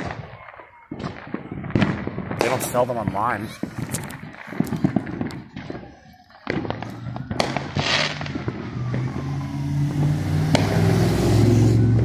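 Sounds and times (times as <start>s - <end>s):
fireworks popping and crackling: 0.0s - 10.9s
firework hissing burst: 7.0s - 12.0s.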